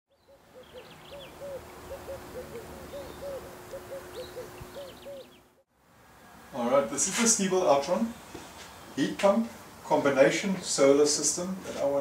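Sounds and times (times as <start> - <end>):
bird calling low note: 0.1 - 5.6.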